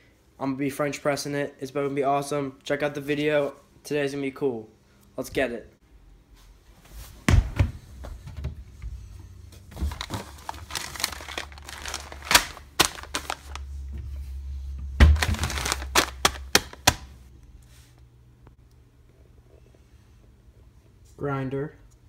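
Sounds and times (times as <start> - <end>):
foil bag crinkling: 9.7 - 13.8, 15.1 - 17.2
heavy thumps: 14.9 - 17.2.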